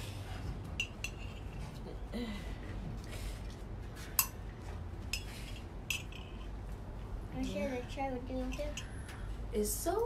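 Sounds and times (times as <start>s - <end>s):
steady low hum: 0.0s - 10.0s
sharp clinks and knocks: 5.2s - 6.5s.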